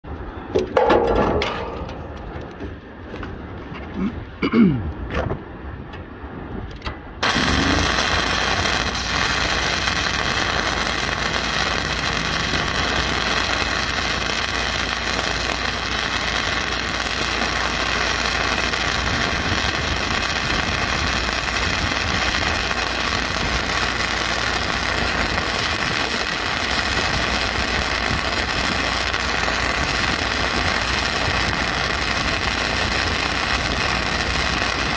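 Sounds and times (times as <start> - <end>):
welding arc crackling: 7.2 - 34.9.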